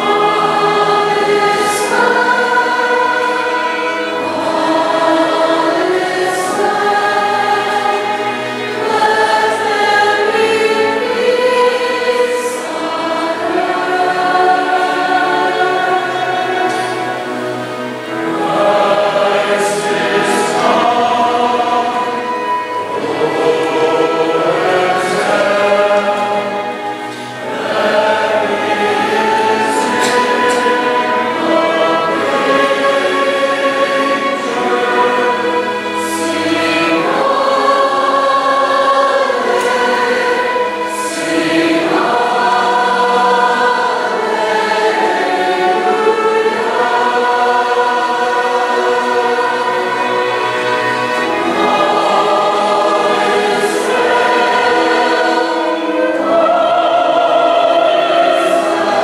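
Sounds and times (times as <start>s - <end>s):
mixed choir singing: 0.0s - 59.0s.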